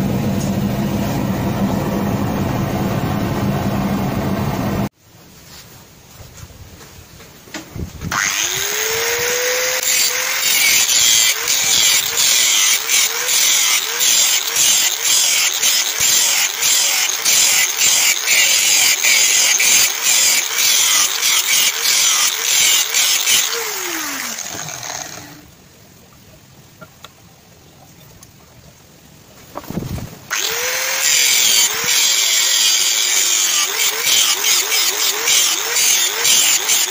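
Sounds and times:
angle grinder cutting steel: 0:08.1 - 0:25.5, 0:30.3 - 0:36.9.

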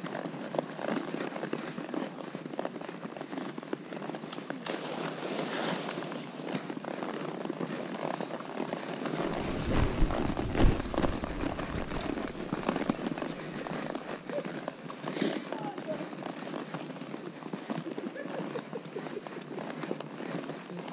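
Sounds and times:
hooves clopping on rocks: 0:00.0 - 0:20.9
low thumps and rumble: 0:09.2 - 0:13.0.

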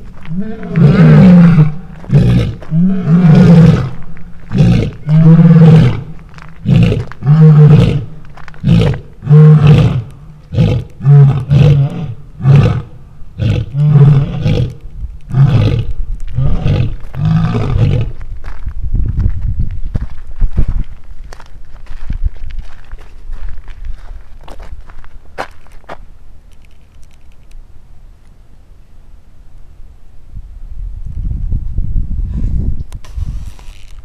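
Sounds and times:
lion roaring: 0:00.2 - 0:18.2.

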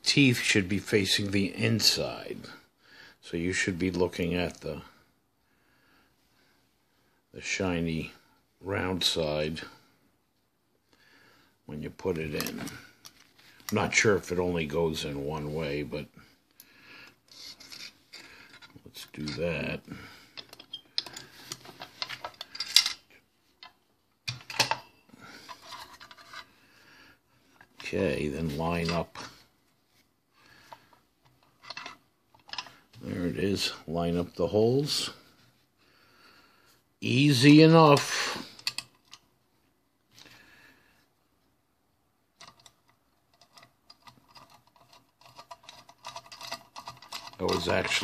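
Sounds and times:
metallic clicks and clinks: 0:20.3 - 0:24.9, 0:38.0 - 0:39.3, 0:42.4 - 0:48.0
clicks and taps on metal parts: 0:38.6 - 0:39.2.

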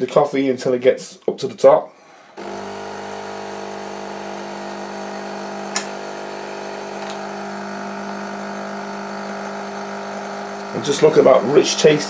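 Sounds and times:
coffee machine pump humming: 0:02.1 - 0:12.0
sharp click: 0:05.7 - 0:06.0.

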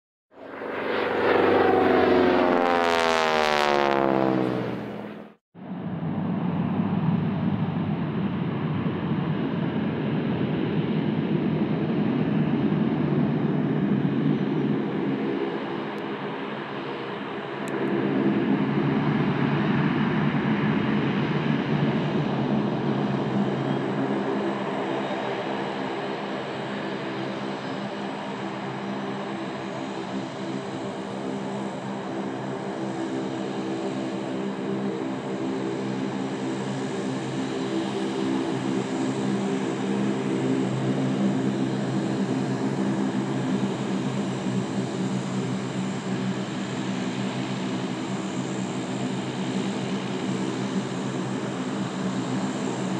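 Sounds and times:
turboprop engines droning: 0:00.3 - 0:52.9
thin engine whine: 0:00.4 - 0:05.4.

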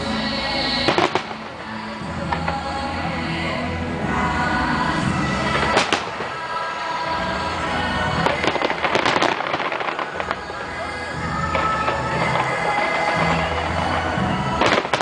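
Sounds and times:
music: 0:00.0 - 0:15.0
firework bangs: 0:00.8 - 0:02.7, 0:05.3 - 0:15.0
firework crackling pops: 0:00.8 - 0:02.7, 0:05.5 - 0:07.0, 0:08.1 - 0:15.0.

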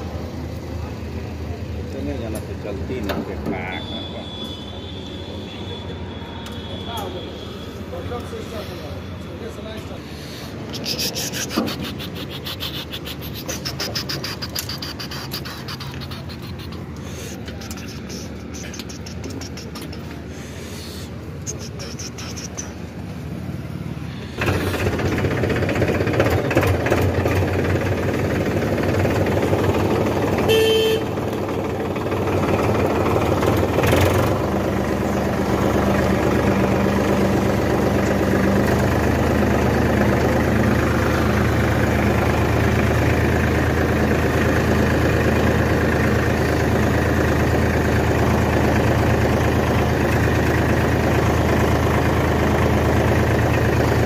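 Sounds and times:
tractor diesel engine running: 0:00.0 - 0:04.0, 0:06.1 - 0:54.0
horn toot: 0:30.5 - 0:31.1.

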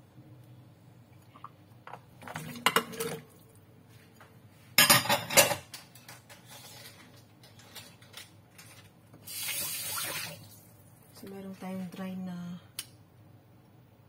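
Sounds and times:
dishes clinking and knocking: 0:01.8 - 0:03.3, 0:04.8 - 0:06.4.

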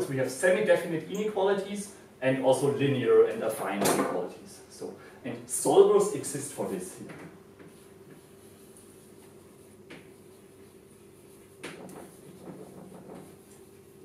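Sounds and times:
low room hum: 0:00.0 - 0:14.0
chalk scratching on a blackboard: 0:07.6 - 0:14.0
chalk tapping on a blackboard: 0:07.6 - 0:14.0.

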